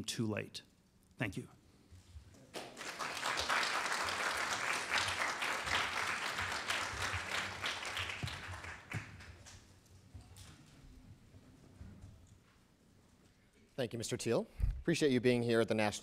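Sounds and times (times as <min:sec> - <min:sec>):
audience applauding: 0:02.5 - 0:09.6.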